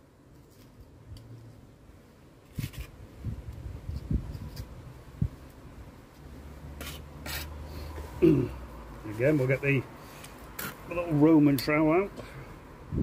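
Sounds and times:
trowel scraping and tapping: 0:06.8 - 0:07.5.

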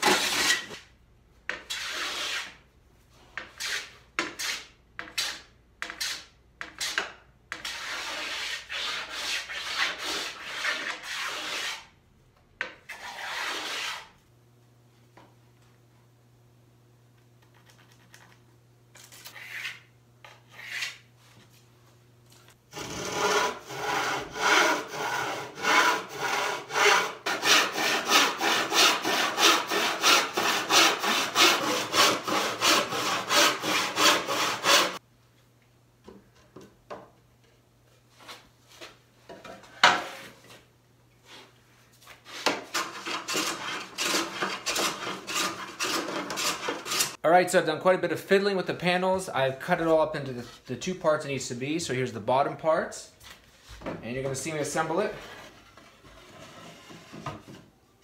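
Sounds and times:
hand tool scraping wood edge: 0:00.0 - 0:00.8, 0:01.5 - 0:02.6, 0:03.4 - 0:11.9, 0:12.9 - 0:14.1, 0:22.7 - 0:35.0, 0:42.2 - 0:47.2
handsaw cutting wood panel: 0:00.0 - 0:00.8, 0:07.6 - 0:11.9, 0:12.9 - 0:14.2, 0:22.7 - 0:35.0, 0:42.3 - 0:47.2.

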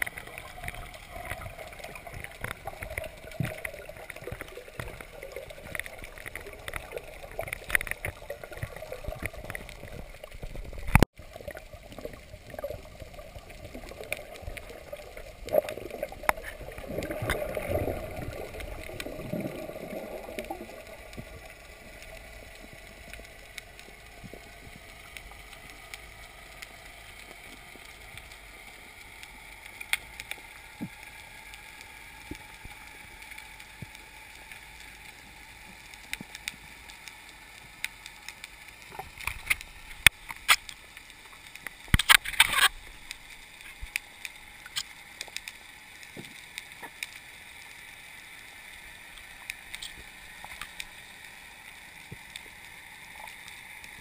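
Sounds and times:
water sloshing and gurgling: 0:00.0 - 0:31.1, 0:38.7 - 0:45.4.

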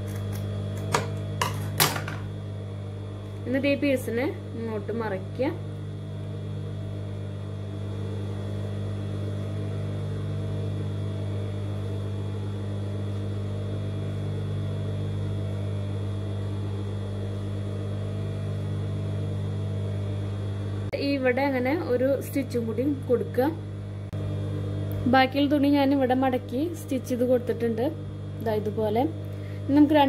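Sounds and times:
electric motor hum: 0:00.0 - 0:30.0.

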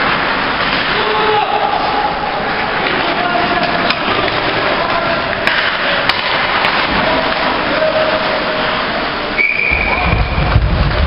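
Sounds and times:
ice skating and play: 0:00.0 - 0:11.0
referee's whistle long blast: 0:09.4 - 0:10.1
low rumble: 0:09.8 - 0:11.0.

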